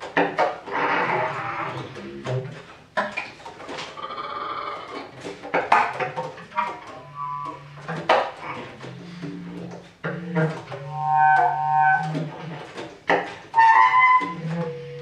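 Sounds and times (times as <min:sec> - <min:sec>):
bass clarinet: 0:06.4 - 0:12.7, 0:13.5 - 0:15.0.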